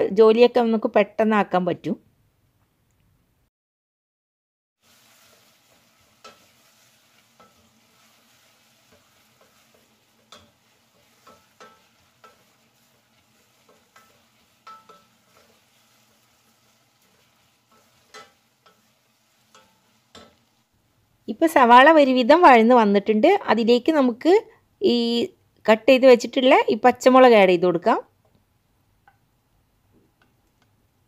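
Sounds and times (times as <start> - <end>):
onions sizzling: 4.8 - 22.5
spatula scraping metal pot: 5.0 - 20.4.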